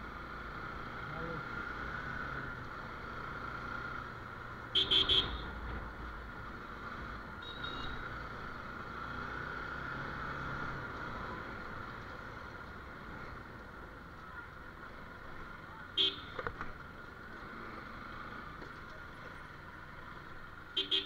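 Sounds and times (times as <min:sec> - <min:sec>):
horn beeping: 0:04.8 - 0:05.5, 0:20.8 - 0:21.0.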